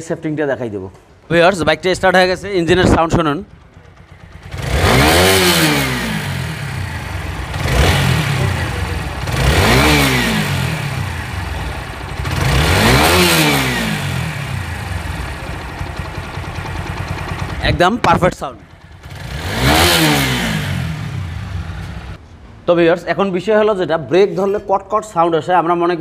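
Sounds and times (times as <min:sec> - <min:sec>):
motorcycle engine revving: 0:02.7 - 0:22.2.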